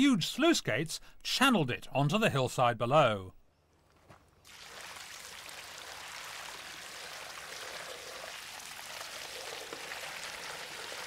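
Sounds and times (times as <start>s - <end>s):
water splashing over stones: 4.5s - 11.0s.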